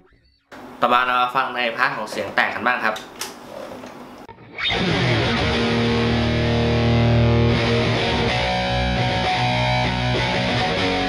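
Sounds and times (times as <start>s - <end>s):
distorted electric guitar chords: 4.3s - 11.0s.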